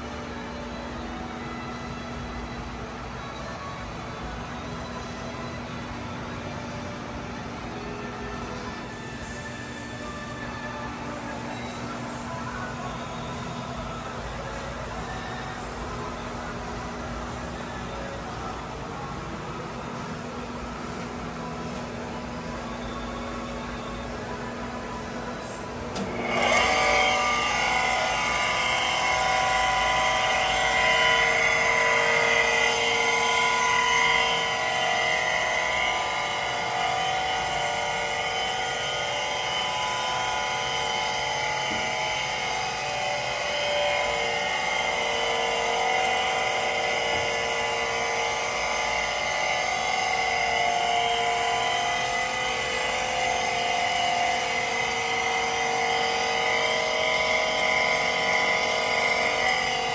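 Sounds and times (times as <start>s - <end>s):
grinder motor whine: 25.9s - 59.9s.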